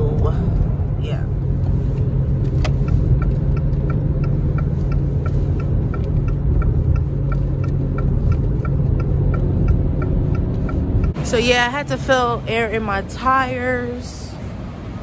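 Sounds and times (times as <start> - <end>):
engine and road rumble: 0.0 - 15.0
light ticking: 1.9 - 11.2.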